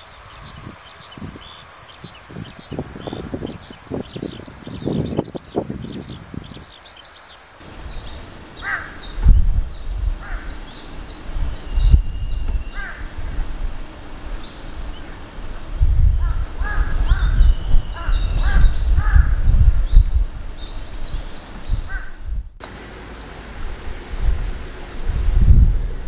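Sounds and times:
rapid high chirping: 7.6 - 15.4
heron crow-like calls: 7.7 - 11.3, 12.4 - 13.4, 16.2 - 19.5, 21.8 - 22.2.

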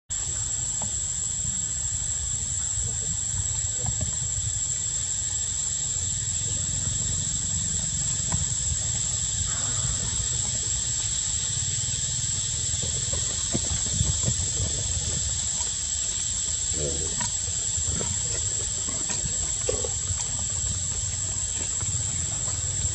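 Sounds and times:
high-pitched whine: 0.1 - 22.9
hiss: 0.1 - 22.9
low rumble: 8.8 - 15.6.

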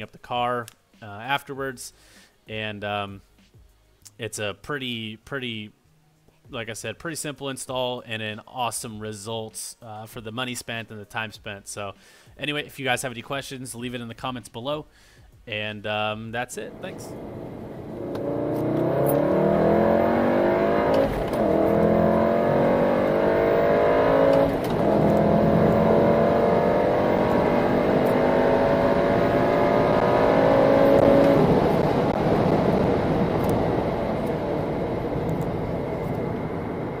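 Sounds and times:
car engine accelerating: 16.6 - 37.0.

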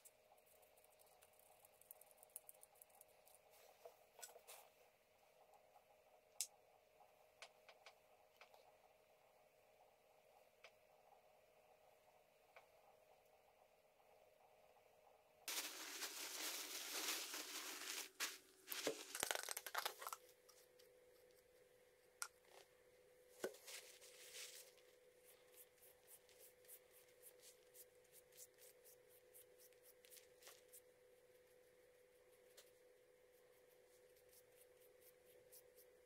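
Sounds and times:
paper towel tearing and crinkling: 15.5 - 20.1.

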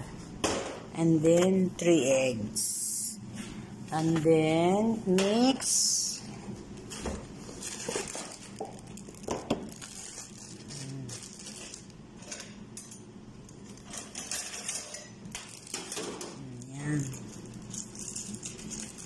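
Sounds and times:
plastic bag rustling: 6.5 - 12.6, 16.9 - 19.0
kitchen items clinking on metal: 7.6 - 19.0.

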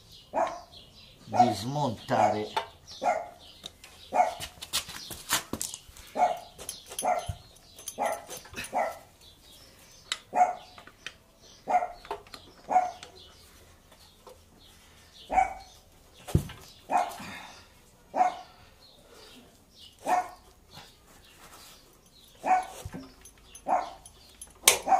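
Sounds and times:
dog barking: 0.3 - 0.7, 1.3 - 1.6, 3.0 - 3.4, 4.1 - 4.4, 6.2 - 7.4, 8.0 - 9.1, 10.3 - 10.7, 11.6 - 12.0, 12.7 - 13.0, 15.3 - 15.7, 16.9 - 17.2, 18.1 - 18.5, 20.0 - 20.4, 22.4 - 22.8, 23.6 - 24.0.

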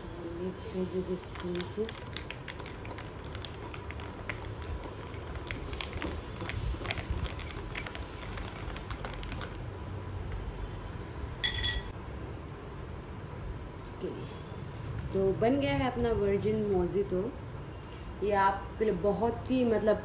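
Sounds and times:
spoon clinking in glass tumbler: 1.1 - 9.6
spoon ringing clink on glass bowl: 11.4 - 11.9.

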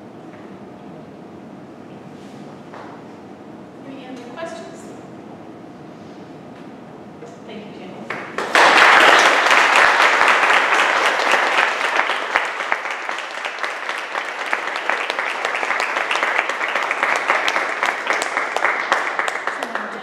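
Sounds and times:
audience applauding: 8.1 - 20.0.

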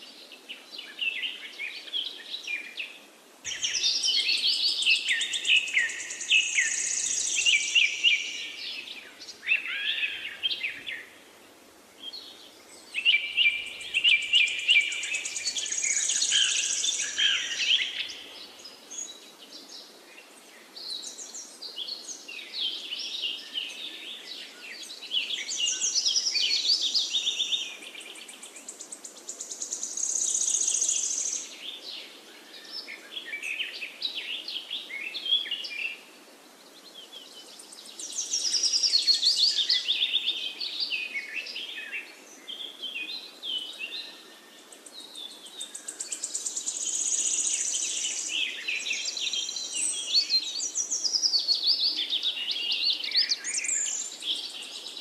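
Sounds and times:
birds chirping and trilling: 3.5 - 11.2, 12.0 - 19.8, 36.8 - 55.0.

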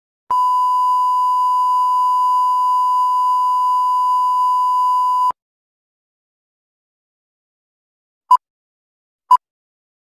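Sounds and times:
steady test tone beep: 0.3 - 5.4.

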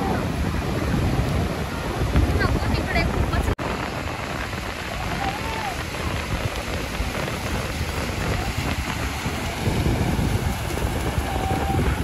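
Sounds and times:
breaking surf: 0.0 - 12.0
wind buffeting microphone: 0.0 - 12.0.

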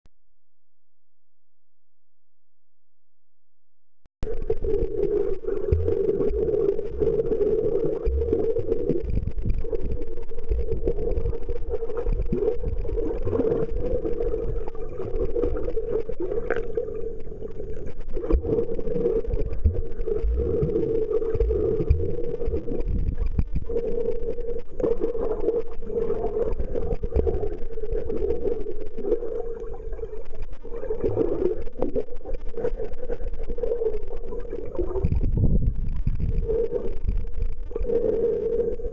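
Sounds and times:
muffled underwater drone: 4.2 - 38.9
low underwater rumbles and knocks: 5.3 - 23.8, 29.7 - 37.8.

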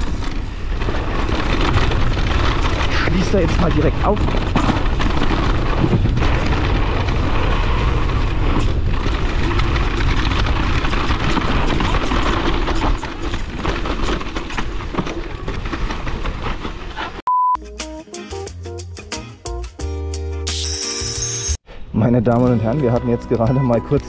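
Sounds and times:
bike riding noise on trail: 0.0 - 17.2
short steady beep: 17.3 - 17.6
music: 17.5 - 21.6, 22.4 - 24.0.

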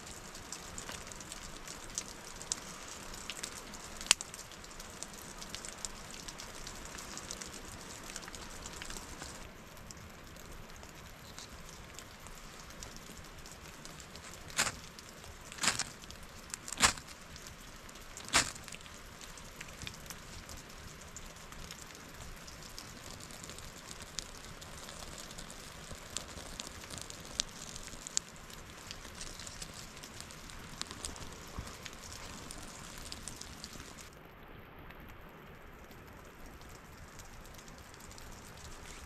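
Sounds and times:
wood fire crackling: 0.0 - 34.2, 35.0 - 39.0
steady rain hiss: 0.0 - 39.0
sharp cracks: 14.1 - 14.9, 15.5 - 17.1, 18.2 - 18.9.

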